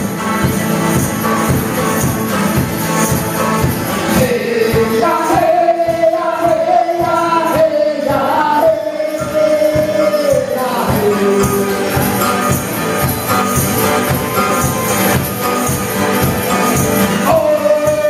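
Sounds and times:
acoustic string band playing: 11.1 - 17.3.

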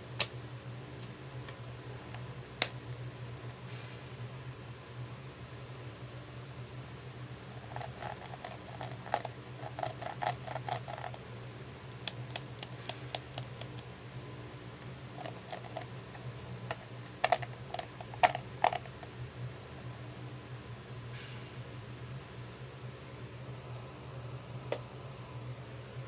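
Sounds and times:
steady low hum: 0.0 - 26.0
nails tapping on plastic case: 16.7 - 18.9.

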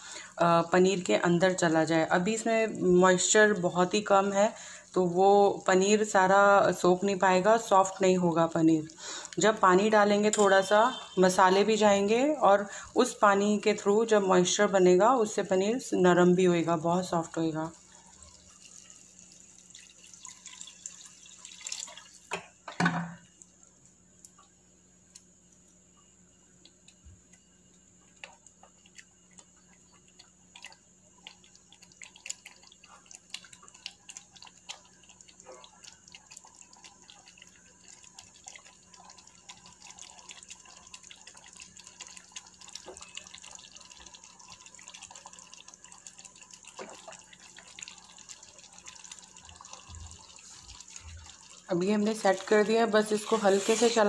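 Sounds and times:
thick gravy bubbling: 17.7 - 22.2, 28.0 - 54.0.

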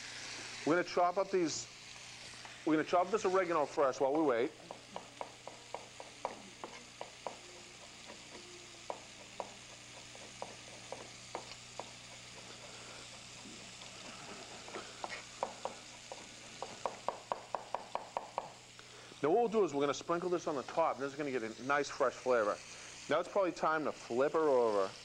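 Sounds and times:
meat searing in hot pan: 0.0 - 25.0.

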